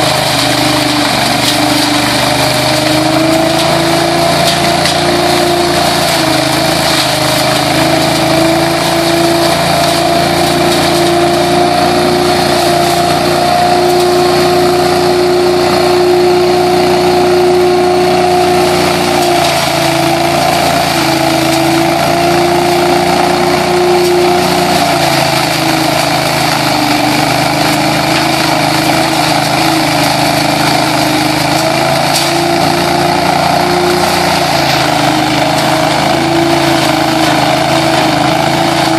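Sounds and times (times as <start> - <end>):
air and leaves rushing: 0.0 - 38.9
leaf vacuum engine drone: 0.0 - 38.9.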